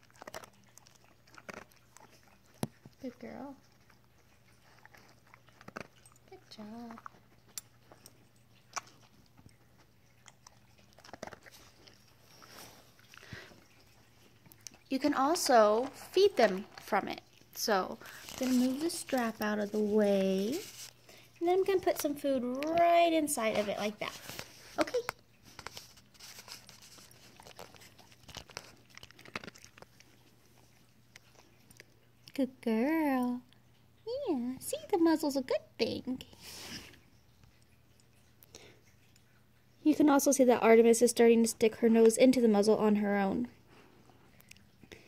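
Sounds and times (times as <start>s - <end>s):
dog crunching treats: 0.0s - 3.0s, 3.6s - 32.3s.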